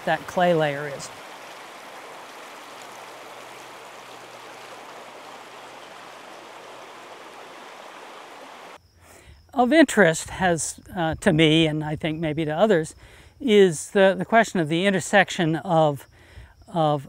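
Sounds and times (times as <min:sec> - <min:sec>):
brook rushing over rocks: 0:00.0 - 0:08.8.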